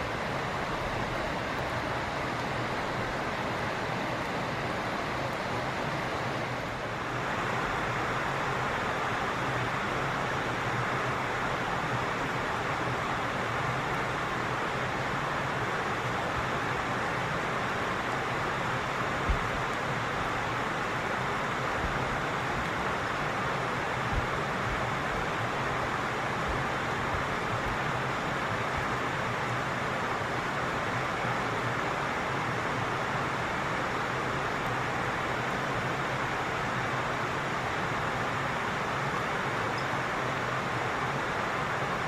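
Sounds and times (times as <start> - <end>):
steady rushing ambient noise: 0.0 - 42.0.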